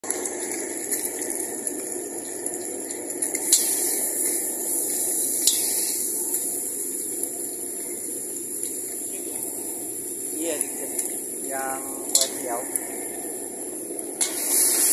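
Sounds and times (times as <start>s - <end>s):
egg sizzling in hot oil: 0.0s - 14.9s
low steady hum: 0.0s - 14.9s.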